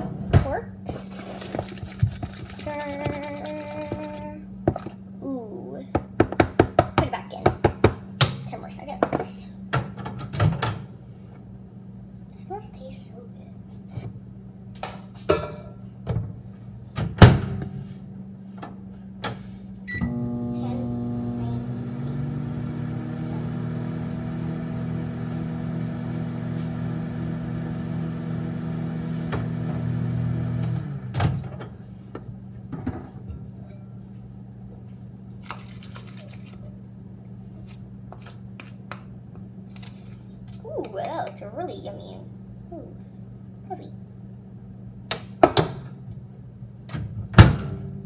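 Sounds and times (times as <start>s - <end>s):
microwave oven humming: 13.5s - 35.4s, 40.3s - 48.0s
microwave beep: 19.9s - 20.6s.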